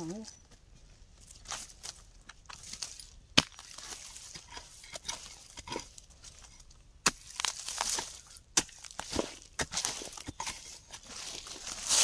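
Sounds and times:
soil scraping and rustling: 0:00.0 - 0:12.0
digging tool knocking earth: 0:02.4 - 0:12.0.

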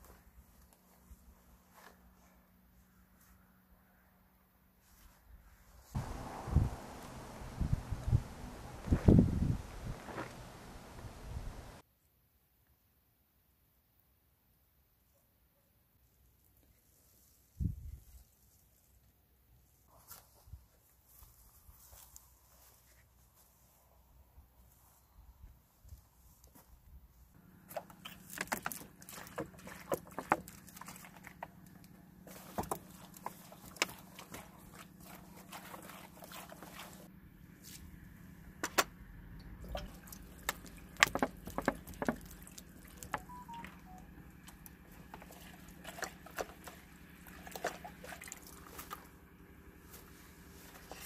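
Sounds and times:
steady low hum: 0:06.0 - 0:11.8
water splashing in metal tin: 0:39.4 - 0:43.6, 0:45.0 - 0:49.0.

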